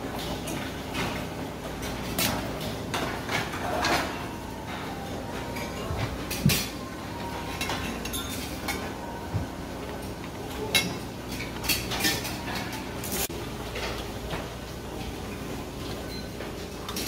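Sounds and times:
dining room hum: 0:00.0 - 0:17.0
crockery and utensils clinking: 0:00.2 - 0:09.2, 0:09.8 - 0:14.4.

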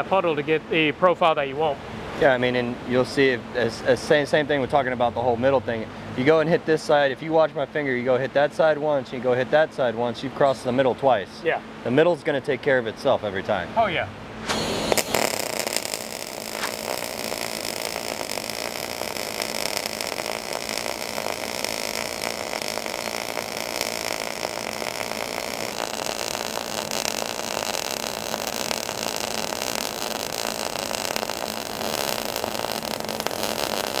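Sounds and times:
welding arc crackling and buzzing: 0:14.5 - 0:34.0.

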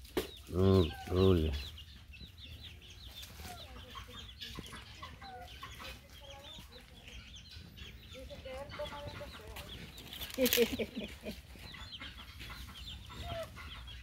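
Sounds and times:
chicks peeping: 0:00.0 - 0:14.0
soft clucks: 0:03.2 - 0:14.0.

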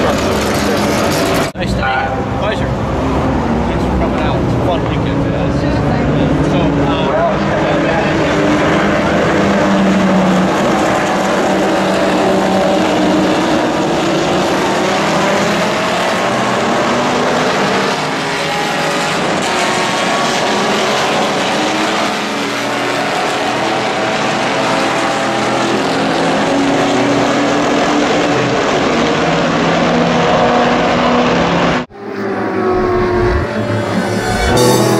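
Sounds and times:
race car engines passing: 0:00.0 - 0:34.9
music: 0:34.2 - 0:34.9.

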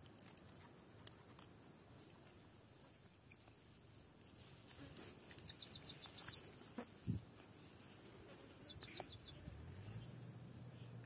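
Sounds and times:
faint low hum: 0:00.0 - 0:11.0
small bird chirping: 0:00.2 - 0:01.1, 0:05.3 - 0:06.5, 0:08.5 - 0:11.0.

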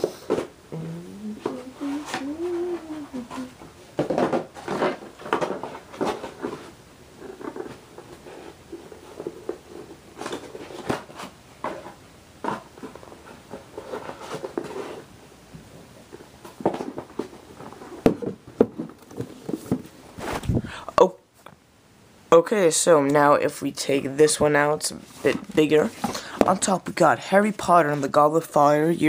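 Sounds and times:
pieces knocking and rubbing in box: 0:01.4 - 0:15.1.

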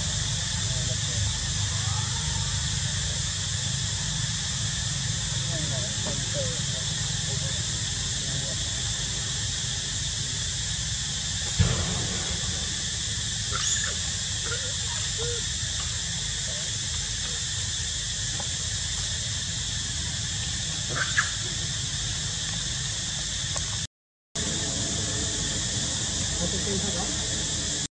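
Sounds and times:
insects droning: 0:00.0 - 0:27.9
faint monkey squeaks: 0:13.5 - 0:15.5.

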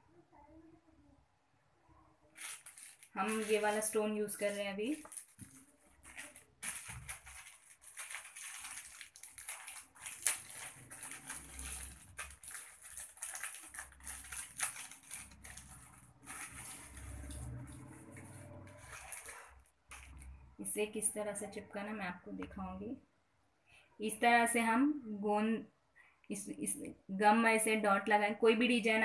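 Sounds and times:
plastic packet crinkling: 0:02.4 - 0:20.4.

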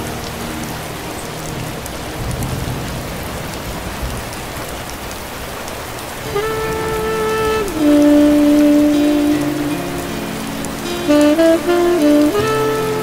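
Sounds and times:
rain on wet street: 0:00.0 - 0:13.0
saxophone long held note: 0:06.2 - 0:13.0.

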